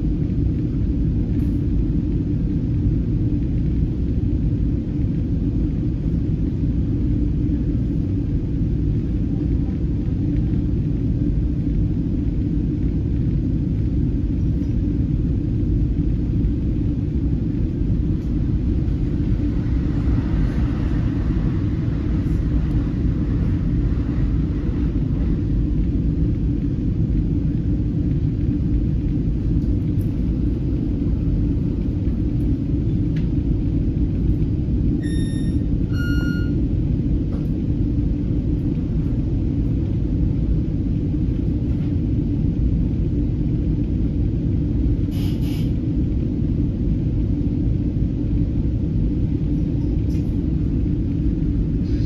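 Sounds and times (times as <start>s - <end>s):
low rumble inside rail coach: 0.0s - 52.0s
short tones: 35.0s - 36.6s
brief hiss: 45.1s - 45.7s.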